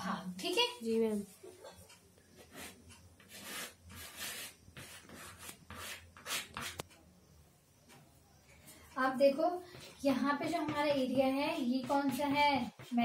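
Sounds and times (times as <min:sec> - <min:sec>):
sharp chalk tick: 0:01.8 - 0:07.0
chalk scratching on chalkboard: 0:02.4 - 0:06.9, 0:09.6 - 0:13.0.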